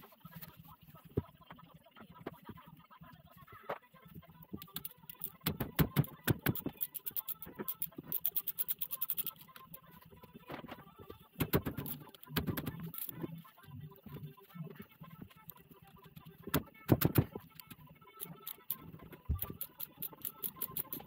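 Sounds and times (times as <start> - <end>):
hand tools clicking on metal: 19.4 - 21.0.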